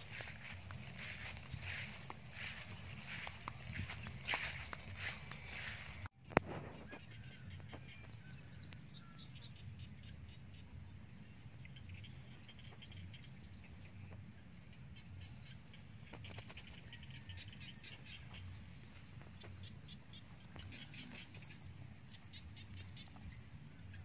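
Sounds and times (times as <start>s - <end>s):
grass rustling: 0.0s - 6.1s, 13.0s - 23.7s.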